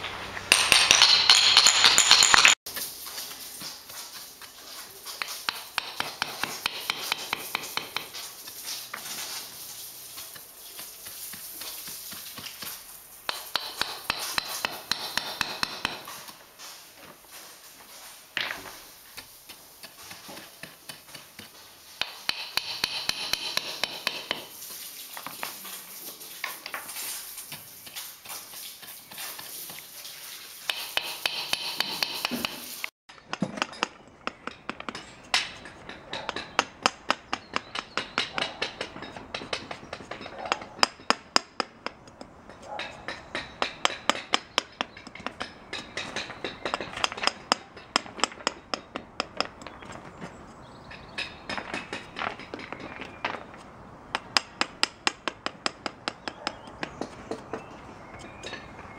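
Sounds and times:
hammer tapping stone cobbles: 0:00.4 - 0:02.6, 0:04.4 - 0:08.3, 0:10.3 - 0:16.3, 0:18.4 - 0:24.6, 0:30.7 - 0:50.3, 0:50.9 - 0:58.9.

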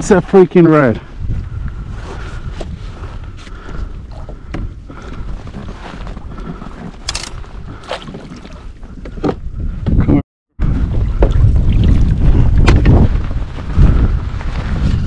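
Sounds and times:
wind buffeting microphone: 0:00.0 - 0:15.0
water moving around kayak: 0:02.0 - 0:09.8.

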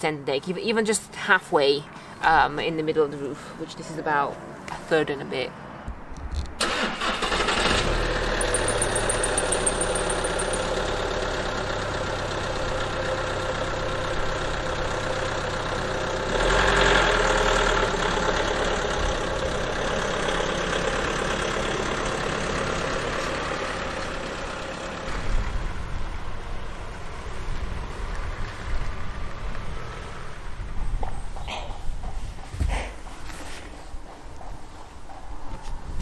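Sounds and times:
van engine idling: 0:06.6 - 0:35.3.

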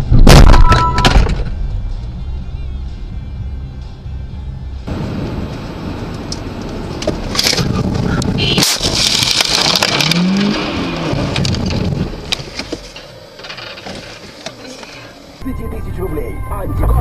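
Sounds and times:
road noise inside car: 0:00.8 - 0:17.0
car crash impacts and scraping: 0:07.1 - 0:14.4.

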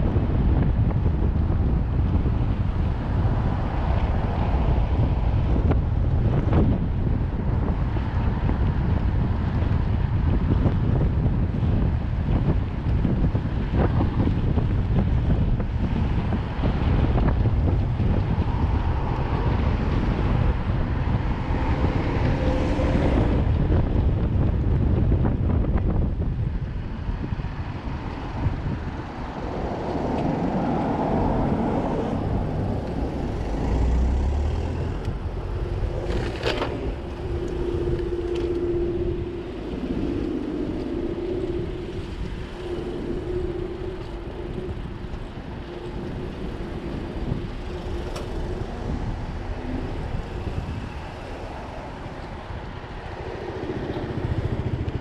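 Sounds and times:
wind on microphone: 0:00.0 - 0:55.0
car traffic passing: 0:01.1 - 0:55.0
steady hum: 0:34.8 - 0:55.0.

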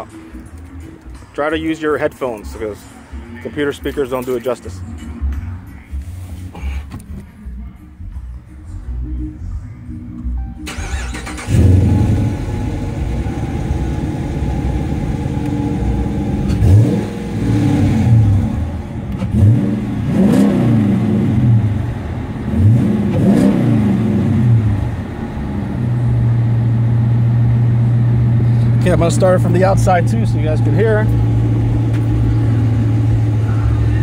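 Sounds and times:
car engine idling: 0:10.6 - 0:34.0
car engine revving: 0:10.7 - 0:34.0.

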